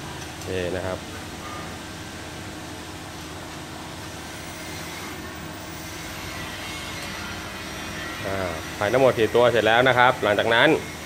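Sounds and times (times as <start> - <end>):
background hum and hiss: 0.0 - 11.0.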